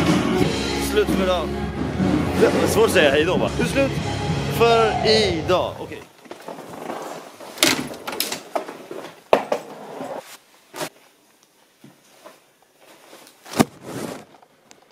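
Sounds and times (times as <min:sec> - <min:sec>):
clothes rustling: 0:06.1 - 0:14.9.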